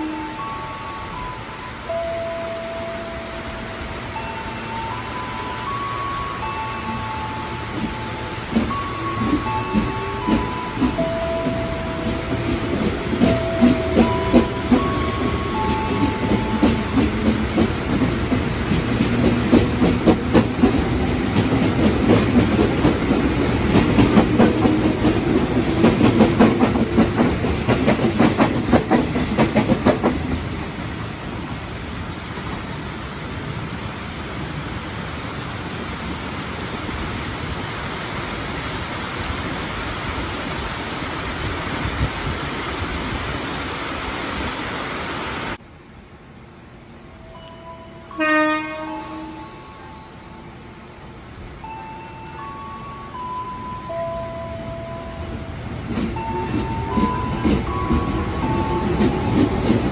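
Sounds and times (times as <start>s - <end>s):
steady rain hiss: 0.0s - 27.7s, 30.2s - 51.6s
train wheels clattering over rail joints: 7.8s - 30.8s, 55.8s - 59.9s.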